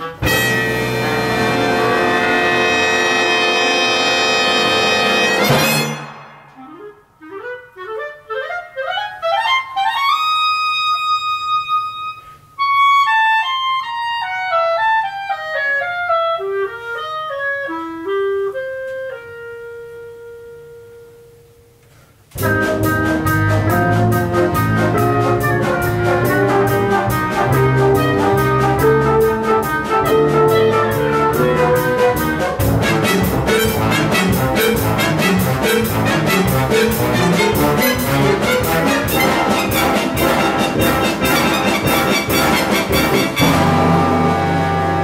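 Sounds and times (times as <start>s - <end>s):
big band chord: 0.0s - 7.0s, 22.3s - 45.0s
big band with drums: 0.0s - 7.0s, 22.3s - 45.0s
solo clarinet: 6.6s - 21.7s, 22.4s - 45.0s.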